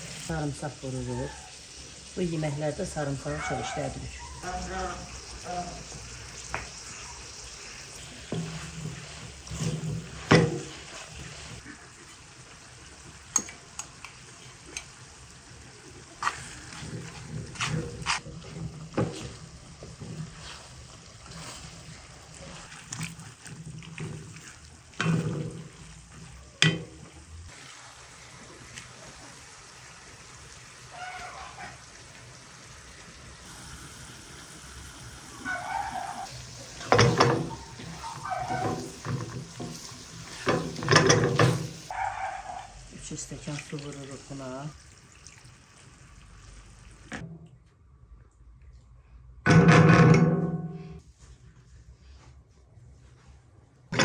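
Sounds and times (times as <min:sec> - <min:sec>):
vegetables sizzling in a frying pan: 0:00.0 - 0:42.0, 0:42.7 - 0:47.2
wooden spoon knocking against pan: 0:36.8 - 0:39.8.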